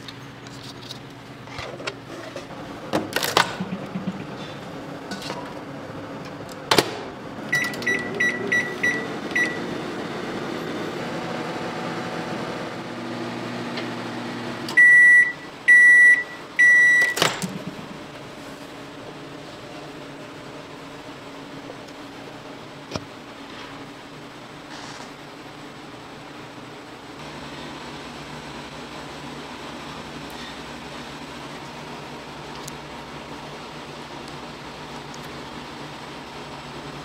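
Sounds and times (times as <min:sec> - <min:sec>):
appliance humming: 0:00.0 - 0:37.0
long loud beeps: 0:07.5 - 0:09.7, 0:14.8 - 0:17.3.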